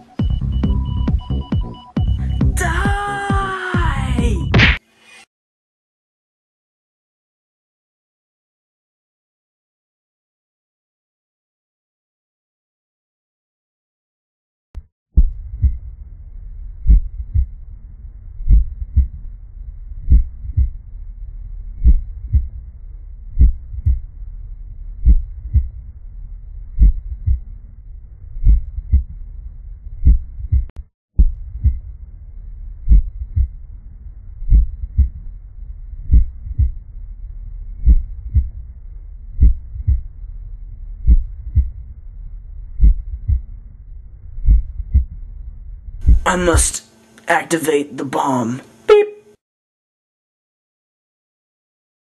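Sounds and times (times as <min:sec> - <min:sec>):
steady low hum: 0:00.0 - 0:03.2, 0:15.2 - 0:49.3
heartbeat thumps: 0:00.2 - 0:04.8, 0:15.2 - 0:15.9, 0:16.8 - 0:17.5, 0:18.4 - 0:19.2, 0:20.0 - 0:20.8, 0:21.8 - 0:22.6, 0:23.4 - 0:24.1, 0:25.0 - 0:25.8, 0:26.8 - 0:27.5, 0:28.4 - 0:29.2, 0:30.0 - 0:31.9, 0:32.8 - 0:33.6, 0:34.4 - 0:35.3, 0:36.0 - 0:36.9, 0:37.8 - 0:38.8, 0:39.4 - 0:40.1, 0:41.0 - 0:41.9, 0:42.8 - 0:43.6, 0:44.4 - 0:45.2, 0:46.0 - 0:46.7.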